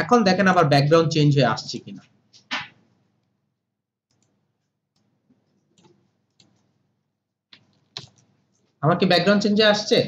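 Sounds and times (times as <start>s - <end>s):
computer mouse clicks: 4.1s - 6.8s, 7.5s - 8.3s.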